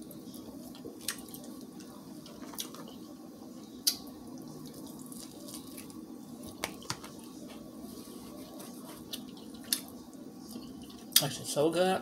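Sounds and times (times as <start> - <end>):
steady low hum: 0.0 - 12.0
chewing crunchy food: 0.3 - 3.0, 3.8 - 7.3.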